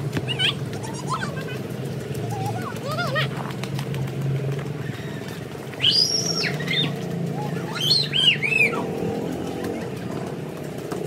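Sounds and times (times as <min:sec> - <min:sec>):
children squealing: 0:04.8 - 0:09.2.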